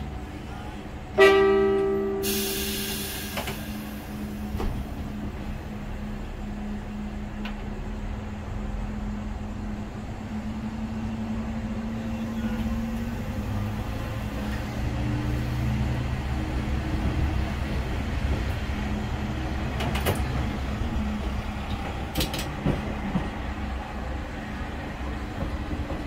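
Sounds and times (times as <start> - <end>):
diesel railcar engine: 0.0 - 26.0
train horn blast: 1.2 - 3.0.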